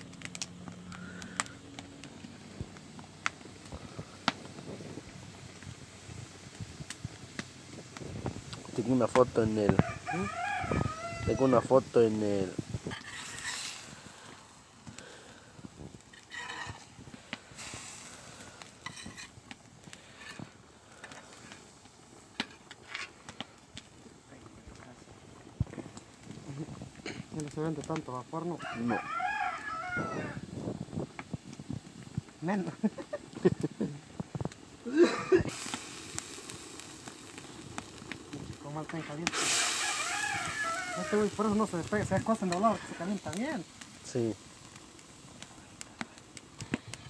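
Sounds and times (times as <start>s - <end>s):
sharp pops of fire: 0.0s - 28.3s, 29.6s - 47.0s
meat sizzling in a pot: 0.0s - 47.0s
wood fire crackling: 0.0s - 47.0s
utensil scraping a metal pot: 12.8s - 13.9s, 16.1s - 16.9s, 18.8s - 19.3s.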